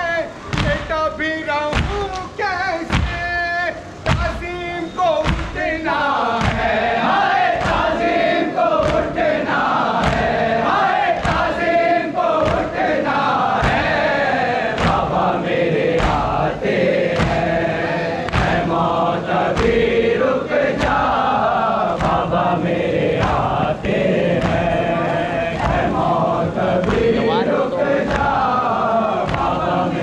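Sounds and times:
crowd of men chanting: 0:00.0 - 0:30.0
hands beating chests: 0:17.1 - 0:18.8.

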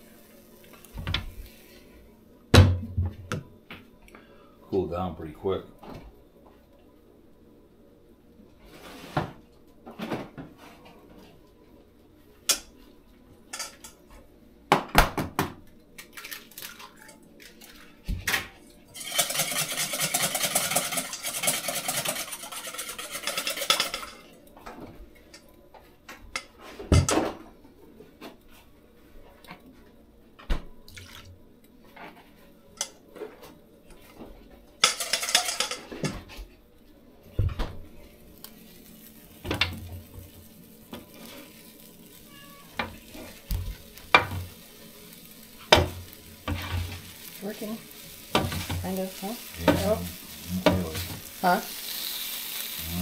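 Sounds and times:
metal pans clinking and knocking: 0:19.0 - 0:24.3, 0:34.8 - 0:36.3
dense rasping noise: 0:52.8 - 0:53.0.

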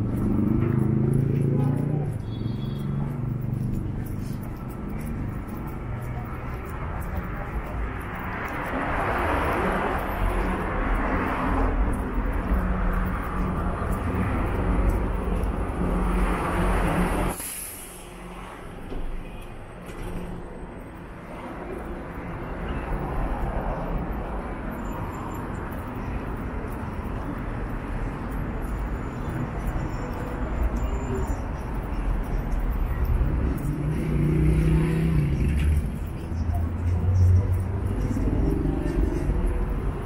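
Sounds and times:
heavy vehicle engine: 0:00.0 - 0:40.0
passing cars: 0:00.0 - 0:40.0
air brake hiss: 0:17.3 - 0:18.2.

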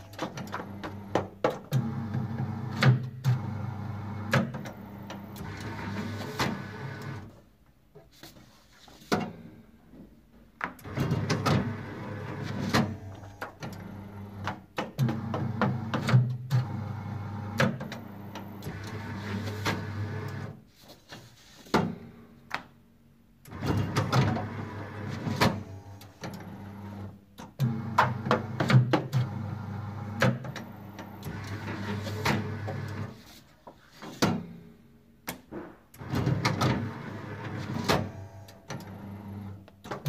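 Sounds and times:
machine clunks and clicks: 0:00.0 - 0:01.9, 0:04.2 - 0:07.2.

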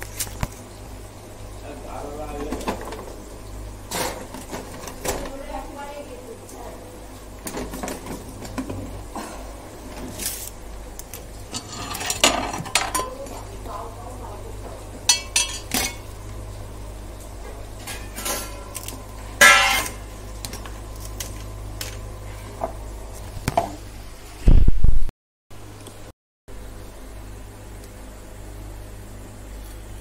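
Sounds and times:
pots and utensils clattering: 0:02.3 - 0:03.2, 0:03.9 - 0:05.4, 0:07.4 - 0:10.2, 0:11.5 - 0:13.5, 0:15.0 - 0:16.2, 0:17.8 - 0:20.7.

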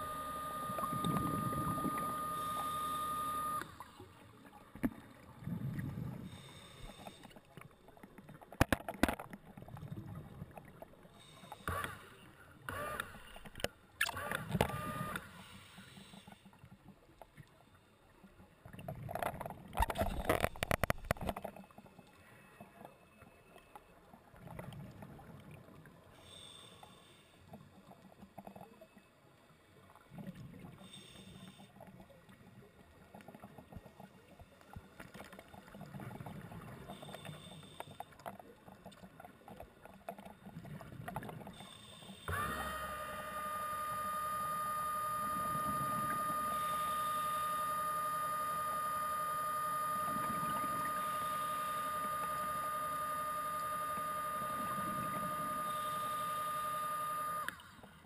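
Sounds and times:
electric motor high whine: 0:00.0 - 0:04.2, 0:11.4 - 0:12.1, 0:12.7 - 0:15.5, 0:42.2 - 0:57.9
diver breathing through regulator: 0:06.1 - 0:07.5, 0:11.1 - 0:12.3, 0:15.2 - 0:16.6, 0:26.2 - 0:27.4, 0:41.6 - 0:43.5.

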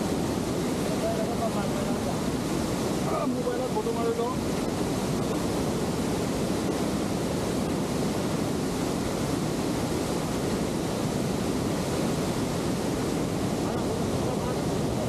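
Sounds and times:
moving water: 0:00.0 - 0:15.0
wind on microphone: 0:00.0 - 0:15.0.

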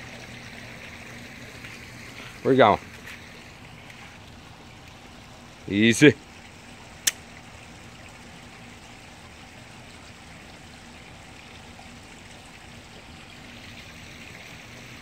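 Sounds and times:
pond water trickling: 0:00.0 - 0:15.0
sharp click: 0:07.0 - 0:07.2.

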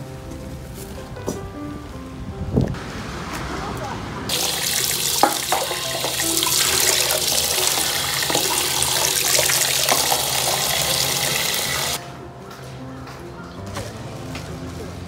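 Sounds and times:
faucet water splashing into container: 0:04.3 - 0:12.0.

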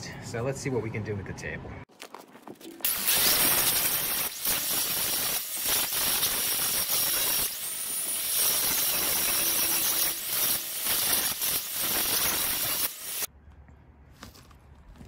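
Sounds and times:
angle grinder grinding metal: 0:02.8 - 0:13.3.

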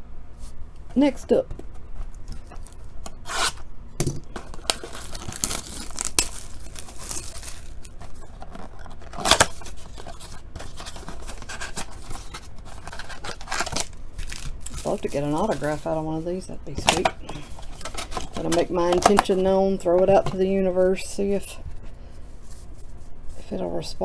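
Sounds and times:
cardboard tearing and crinkling: 0:04.3 - 0:15.9.

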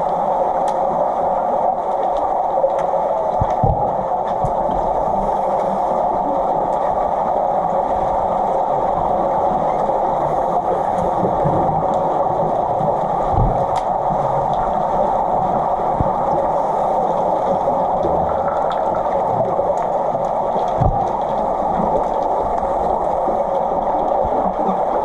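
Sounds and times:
muffled underwater hiss: 0:00.0 - 0:25.0
faint clicks: 0:01.9 - 0:03.6, 0:13.4 - 0:14.8.

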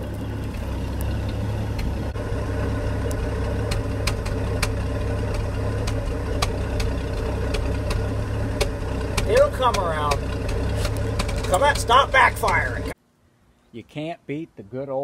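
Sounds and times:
engine idling exhaust rumble: 0:00.0 - 0:13.0
sharp engine ticks: 0:02.9 - 0:13.0.

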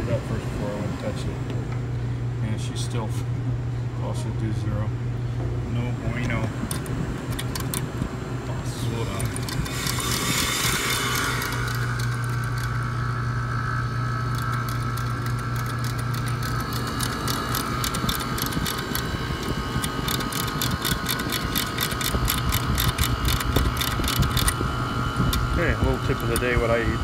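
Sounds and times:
low machine hum: 0:00.0 - 0:27.0
ratchet wrench clicking: 0:09.1 - 0:13.0, 0:14.1 - 0:24.6, 0:25.3 - 0:26.6.

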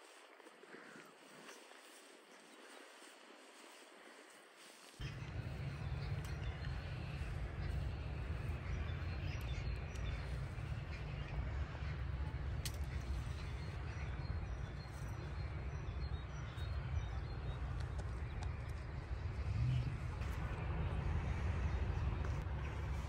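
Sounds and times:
faint bird calls: 0:00.0 - 0:17.4
wind rumble on microphone: 0:05.0 - 0:23.0.

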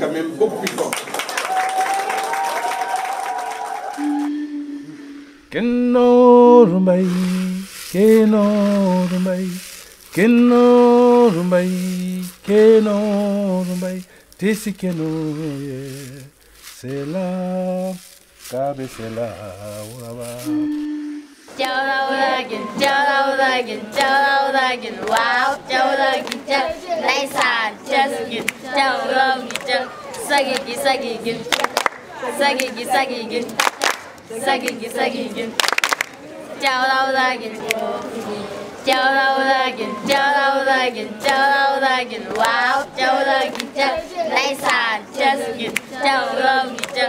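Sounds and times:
children singing a cappella: 0:18.8 - 0:31.6, 0:32.2 - 0:33.6, 0:34.3 - 0:35.6, 0:36.6 - 0:47.0.

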